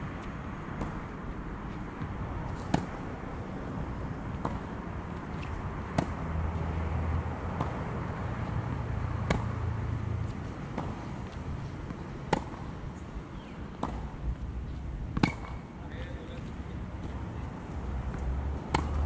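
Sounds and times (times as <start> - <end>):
tennis racket hitting ball: 2.5 - 3.0, 5.4 - 6.2, 9.2 - 9.5, 11.9 - 12.7, 15.1 - 15.6, 18.1 - 19.0.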